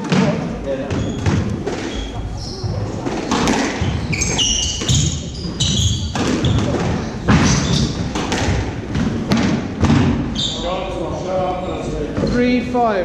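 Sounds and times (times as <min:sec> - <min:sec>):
shoes squeaking on hardwood floor: 0:00.0 - 0:10.8
squash ball cracks: 0:03.0 - 0:04.0, 0:06.1 - 0:10.3.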